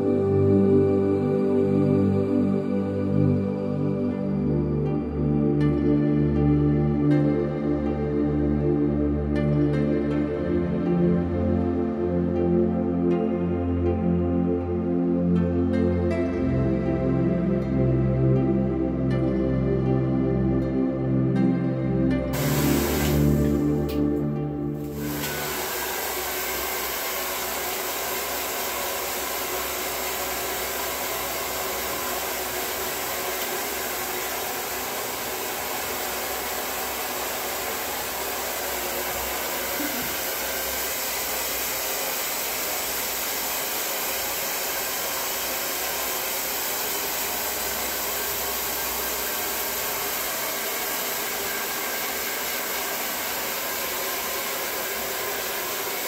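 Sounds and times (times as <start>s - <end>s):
hair dryer blowing: 22.3s - 56.0s.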